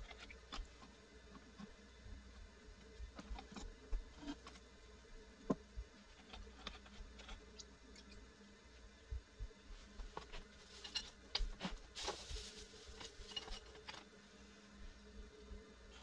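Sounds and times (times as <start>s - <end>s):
pottery wheel humming: 0.0s - 16.0s.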